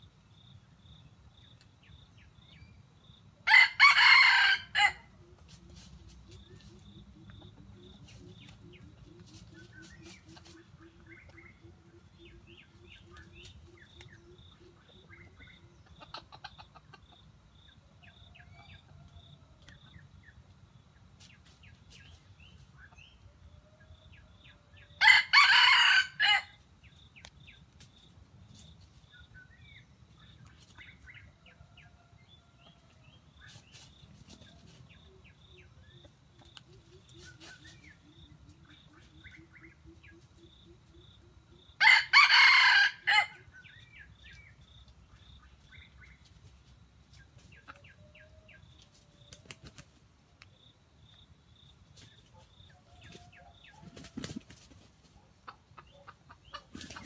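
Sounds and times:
rooster crowing: 0:03.4 - 0:05.1, 0:25.0 - 0:26.6, 0:41.8 - 0:43.4
faint chicken clucks: 0:03.4 - 0:57.0.

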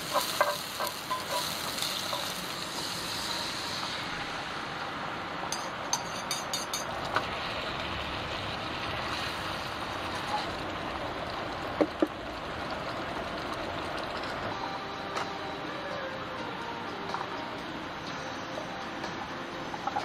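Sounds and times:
gas stove hiss: 0:00.0 - 0:20.0
utensils scraping a pan: 0:00.1 - 0:02.4.

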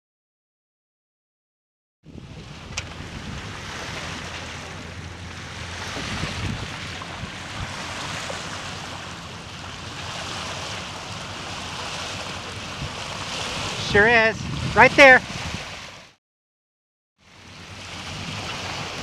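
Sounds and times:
wind buffeting microphone: 0:02.1 - 0:16.1
boat engine drone: 0:02.1 - 0:16.2, 0:17.2 - 0:19.0
water rushing along hull: 0:02.1 - 0:16.2, 0:17.2 - 0:19.0.

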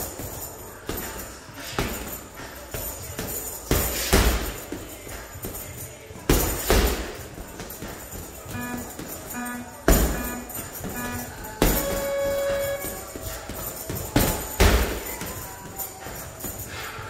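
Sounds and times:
background music with jingling beat: 0:00.0 - 0:17.0
punches thumping heavy bag: 0:02.8 - 0:05.6, 0:06.3 - 0:15.4.

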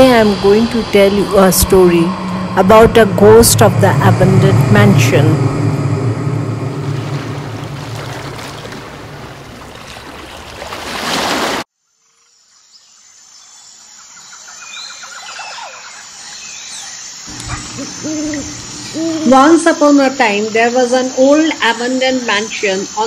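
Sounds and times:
low wavering call: 0:00.0 - 0:09.4, 0:17.3 - 0:20.5.

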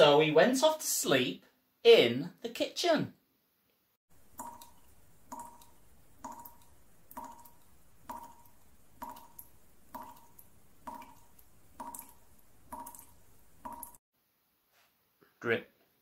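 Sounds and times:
tap dripping: 0:04.2 - 0:14.0.

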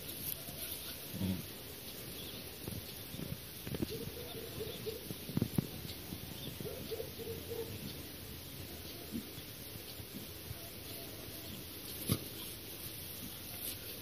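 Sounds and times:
dogs whining: 0:03.8 - 0:05.1, 0:06.5 - 0:07.8.

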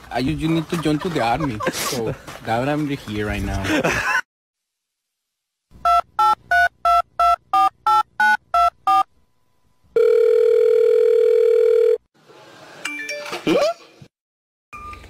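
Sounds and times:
steady telephone tone: 0:10.0 - 0:12.0.

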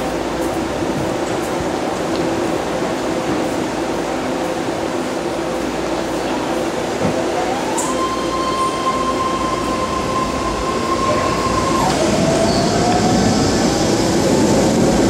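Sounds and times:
train propulsion whine: 0:00.0 - 0:15.0.

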